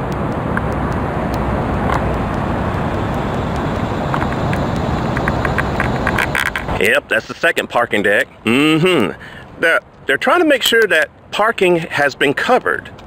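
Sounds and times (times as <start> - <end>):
road traffic rushing by: 0.0 - 9.6.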